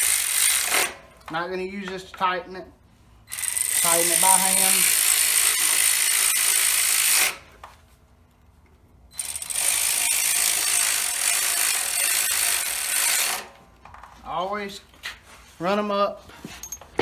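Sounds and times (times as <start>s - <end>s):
electric ratchet whirring: 0.0s - 1.0s, 3.3s - 7.5s, 9.1s - 13.6s.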